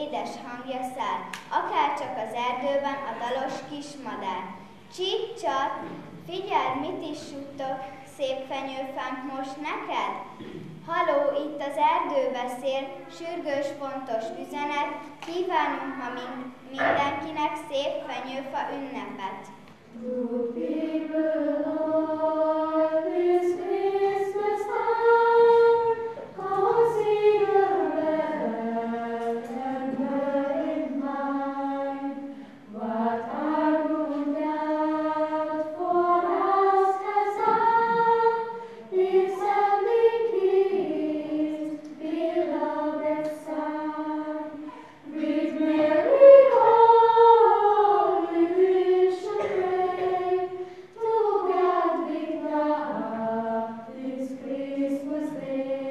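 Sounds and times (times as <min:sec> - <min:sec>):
girls' choir singing: 0:16.8 - 0:17.2, 0:19.8 - 0:55.9.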